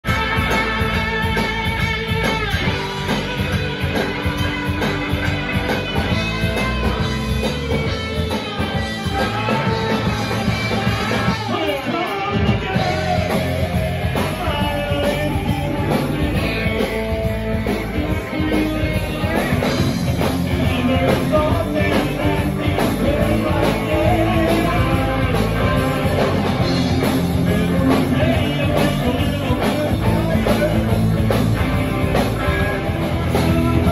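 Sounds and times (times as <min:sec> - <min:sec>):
bass guitar: 0:00.0 - 0:33.9
drum kit: 0:00.0 - 0:33.9
electric guitar: 0:00.0 - 0:33.9
lead singer singing: 0:08.8 - 0:33.9.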